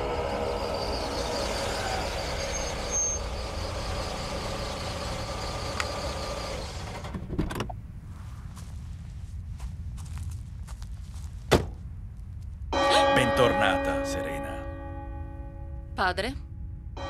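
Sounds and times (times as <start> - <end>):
car engine running: 0.0 - 7.7
road rumble: 0.0 - 12.8.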